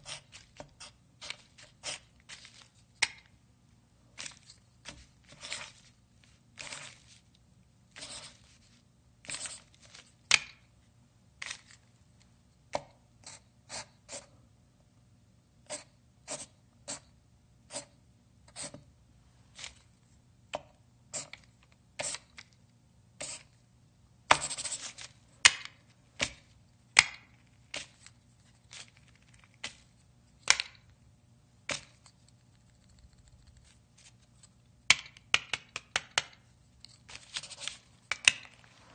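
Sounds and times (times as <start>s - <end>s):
pencil scratching on paper: 0.0s - 2.1s, 8.0s - 8.5s, 15.6s - 17.1s, 17.7s - 18.8s.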